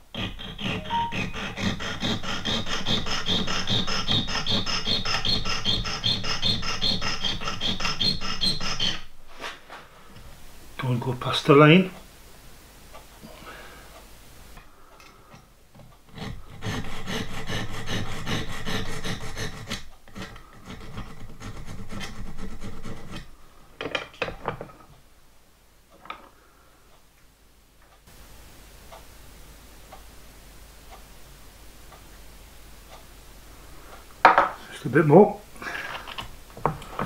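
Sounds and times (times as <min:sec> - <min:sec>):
file rasping on metal: 0:00.0 - 0:09.1, 0:16.1 - 0:23.3.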